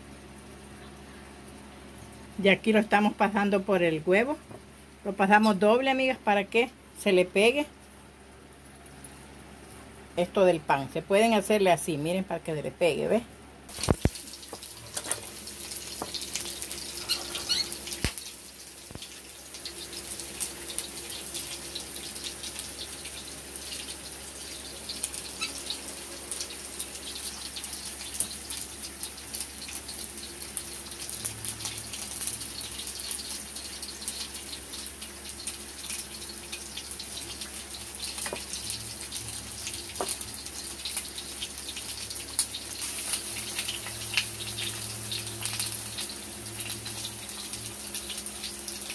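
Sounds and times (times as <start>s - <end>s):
oil sizzling in frying pans: 13.7s - 48.9s.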